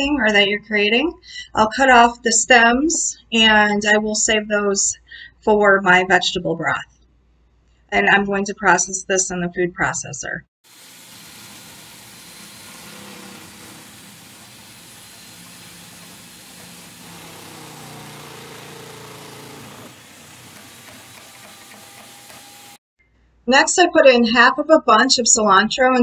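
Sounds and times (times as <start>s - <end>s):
food processor motor whirring: 10.6s - 22.8s.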